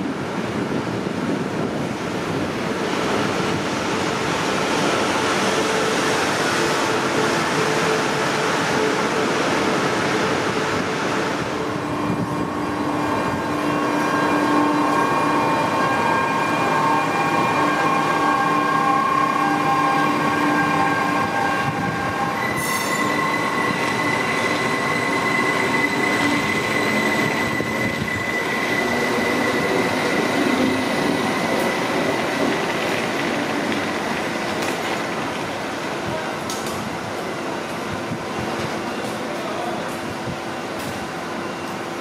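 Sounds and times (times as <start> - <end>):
train wheels squealing: 12.0 - 33.5, 40.7 - 42.0.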